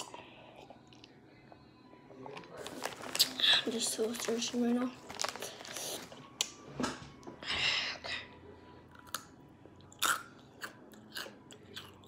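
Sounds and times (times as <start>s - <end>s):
chips being crunched and chewed: 2.4s - 4.3s.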